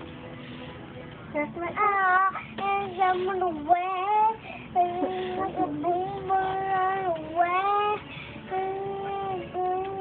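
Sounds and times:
girl singing unaccompanied: 0:01.3 - 0:10.0.

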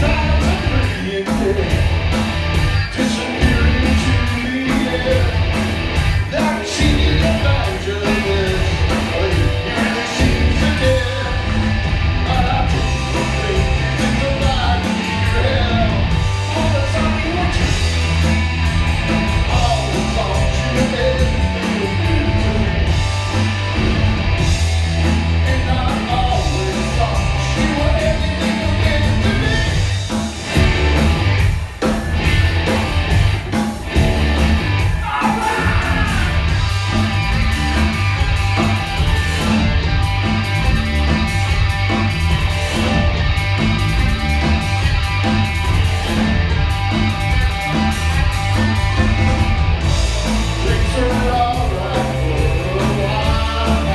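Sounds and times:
man singing lead vocal: 0:00.0 - 0:01.9, 0:02.8 - 0:05.5, 0:06.2 - 0:11.6, 0:12.2 - 0:17.8, 0:19.4 - 0:22.8, 0:25.4 - 0:29.9, 0:34.9 - 0:36.5, 0:50.2 - 0:53.9
rock band playing live: 0:00.0 - 0:53.9.

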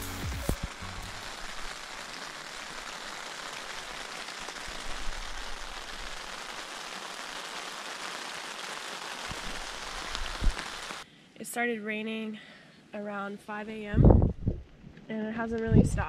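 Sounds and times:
steady rain hissing: 0:00.0 - 0:13.8
raindrop ticks: 0:00.2 - 0:11.0, 0:14.6 - 0:15.8.

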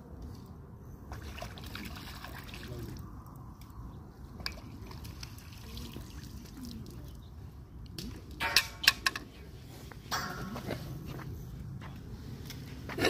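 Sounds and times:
water trickling and dripping: 0:01.1 - 0:08.8.

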